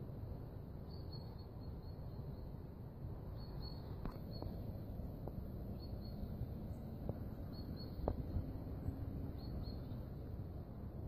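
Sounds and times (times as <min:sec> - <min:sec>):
low background noise: 0:00.0 - 0:11.0
bird chirps: 0:00.9 - 0:02.5, 0:03.4 - 0:04.7, 0:05.7 - 0:10.2.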